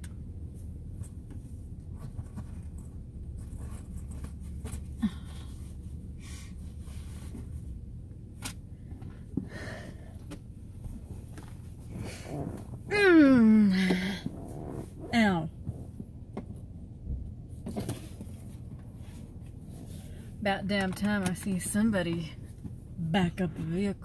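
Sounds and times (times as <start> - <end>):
soft rustles and clicks: 0.0 - 9.5, 10.2 - 12.9, 17.4 - 23.0
low cabin rumble: 0.0 - 24.0.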